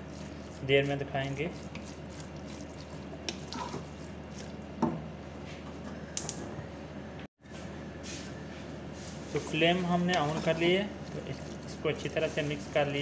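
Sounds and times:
wooden spoon stirring minced meat: 0.0s - 4.6s, 9.0s - 13.0s
steady low hum: 0.0s - 13.0s
spoon scraping against pot: 9.4s - 13.0s.

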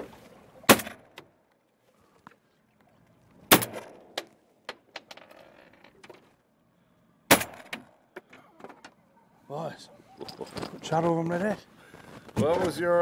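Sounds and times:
shotgun shots: 7.3s - 7.7s.

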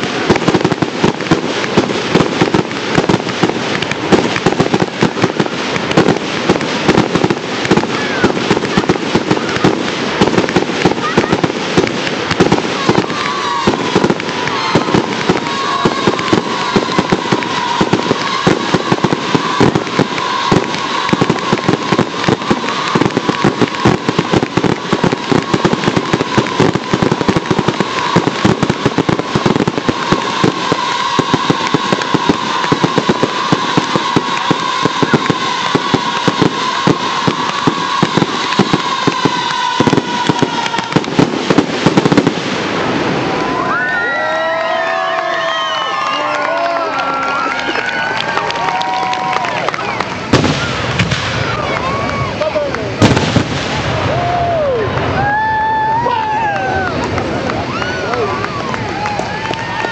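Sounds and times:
fireworks firing and bursting: 0.0s - 59.9s
wavering whistle: 12.9s - 41.2s, 44.8s - 46.6s.

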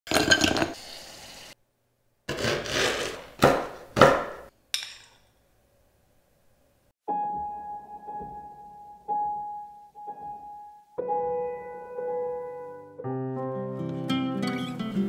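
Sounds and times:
spatula scraping a bowl: 2.3s - 3.3s.

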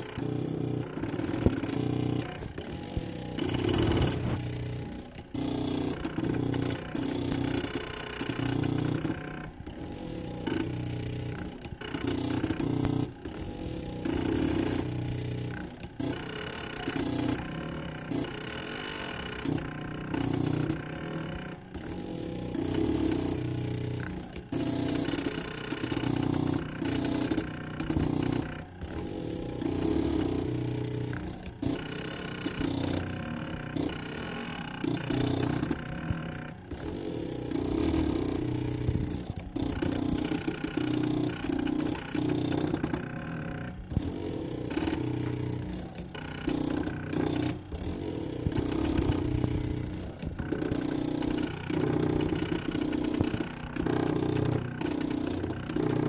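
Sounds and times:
stepper motors whining: 0.0s - 7.6s.

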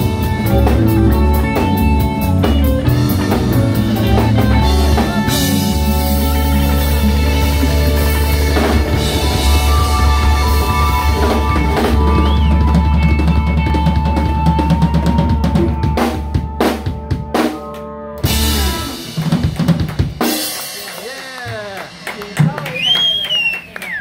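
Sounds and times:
drum kit hits: 0.0s - 14.6s
jazz band holding chord: 0.0s - 22.5s.

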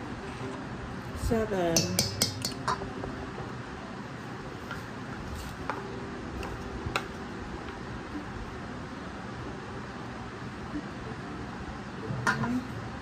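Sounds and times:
low background hum: 0.0s - 13.0s
metal cup tapping steel bowl: 1.8s - 2.8s.

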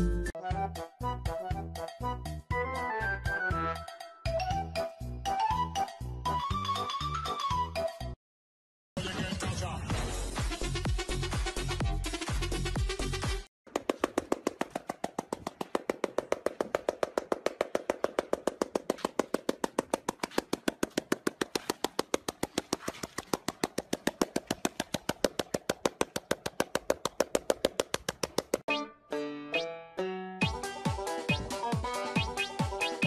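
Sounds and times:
fast sharp ticks: 13.7s - 28.7s.

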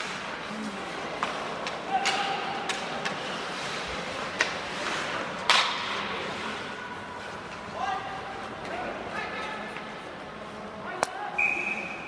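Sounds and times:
hockey sticks clacking on puck: 1.2s - 6.4s
skates scraping on ice: 2.8s - 7.6s
puck knocking off boards: 5.4s - 6.0s.

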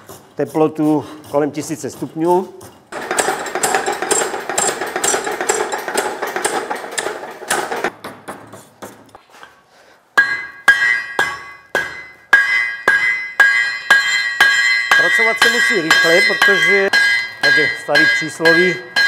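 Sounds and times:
power hammer beating iron: 2.9s - 7.9s, 10.2s - 19.0s
hand hammer ringing on anvil: 3.0s - 7.9s, 10.2s - 19.0s.

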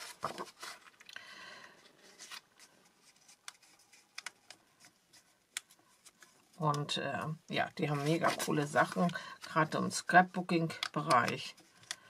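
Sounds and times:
paper sheets rustling: 0.0s - 1.1s, 1.9s - 7.0s, 7.8s - 12.0s
light clicks of pages on discs: 2.1s - 7.0s, 10.6s - 12.0s.

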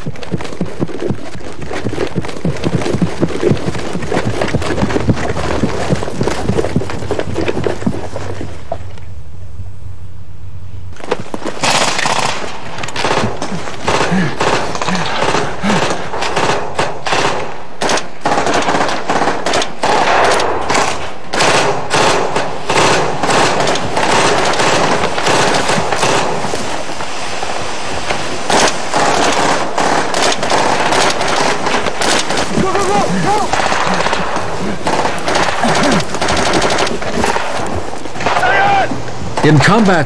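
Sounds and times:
automatic gunfire bursts: 11.6s - 26.6s, 28.5s - 38.4s.

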